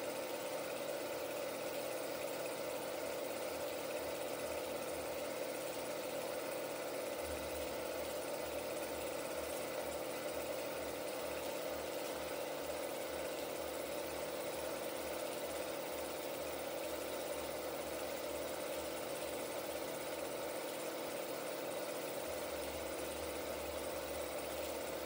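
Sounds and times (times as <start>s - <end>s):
film projector whirring: 0.0s - 25.0s.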